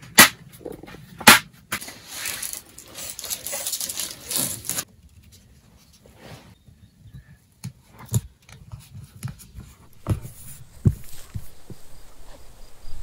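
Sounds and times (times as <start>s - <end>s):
soft thumps and knocks: 9.2s - 12.4s.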